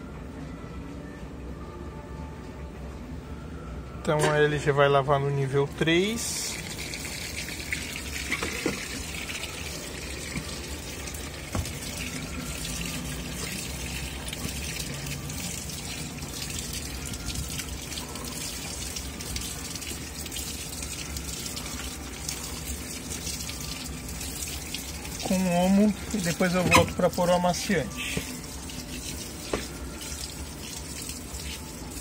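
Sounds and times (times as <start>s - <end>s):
water splashing into washing machine: 6.0s - 32.0s.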